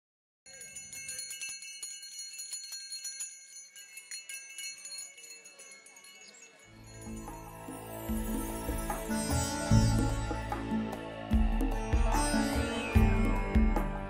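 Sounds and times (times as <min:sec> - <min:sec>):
high chimes tinkling: 0:00.5 - 0:10.9.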